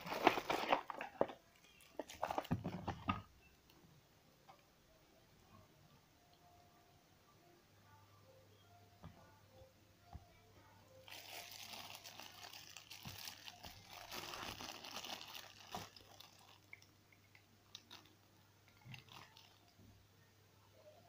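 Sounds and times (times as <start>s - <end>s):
plastic bag crinkling: 0.0s - 3.1s, 11.0s - 16.9s, 17.7s - 19.7s.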